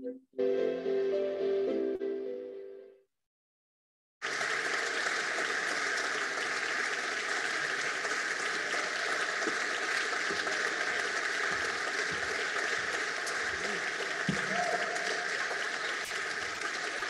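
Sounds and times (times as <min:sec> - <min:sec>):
audience applauding: 0:04.2 - 0:17.0.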